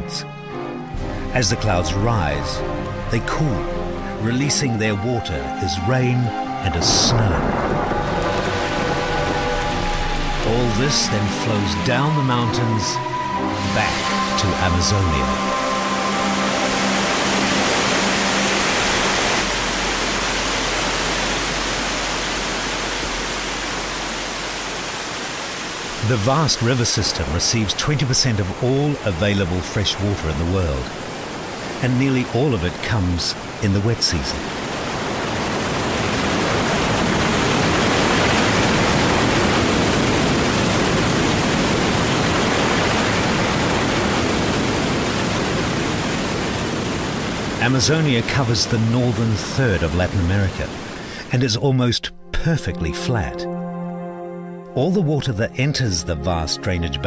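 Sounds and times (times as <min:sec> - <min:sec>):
held music chord: 0:00.0 - 0:25.0, 0:51.9 - 0:57.0
waterfall roaring: 0:01.4 - 0:51.5
river rushing over rapids: 0:06.7 - 0:51.4.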